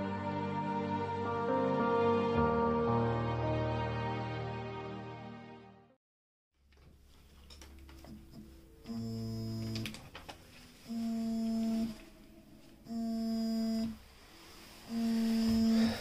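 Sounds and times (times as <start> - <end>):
phone vibrating on wooden desk: 8.9 - 9.8, 10.9 - 12.0, 12.9 - 14.0, 14.9 - 16.0.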